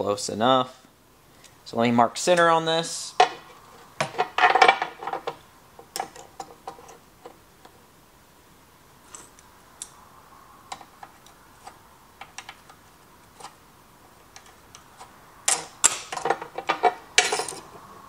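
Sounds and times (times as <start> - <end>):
metal hand tools knocking and scraping: 3.2 - 7.0, 15.5 - 17.7.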